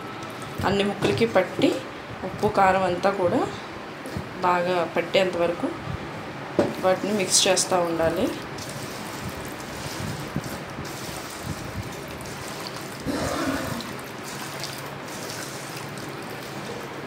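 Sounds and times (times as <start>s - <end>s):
wet squelching of hand mixing: 8.4s - 17.0s.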